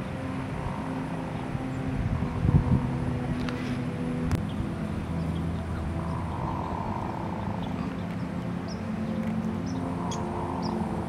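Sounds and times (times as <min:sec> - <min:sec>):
ducks giving rolling frog-like calls: 0:05.4 - 0:11.0.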